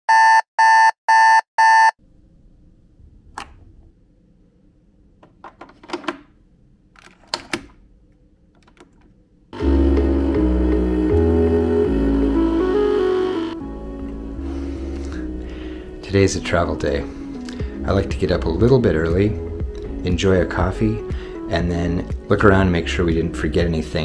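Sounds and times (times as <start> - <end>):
alarm beeping: 0.1 - 2.0
plastic clicks and knocks: 5.2 - 6.3
background music: 9.6 - 24.0.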